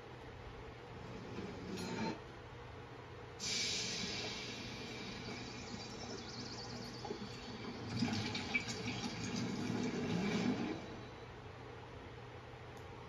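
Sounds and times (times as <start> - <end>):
steam-like hiss: 3.4 - 7.0
click: 12.7 - 12.9.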